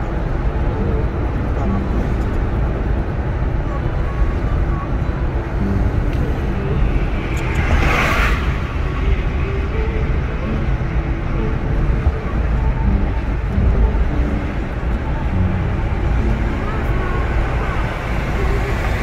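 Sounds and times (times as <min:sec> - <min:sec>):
road and tyre rumble: 0:00.0 - 0:19.0
passing car whoosh: 0:05.5 - 0:12.1.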